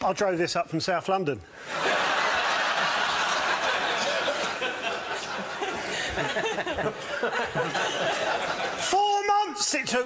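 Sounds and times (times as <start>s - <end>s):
audience laughing: 1.6s - 8.9s.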